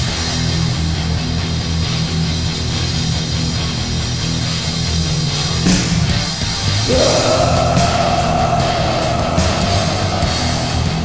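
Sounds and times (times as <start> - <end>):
distorted electric guitar: 5.4 - 11.0.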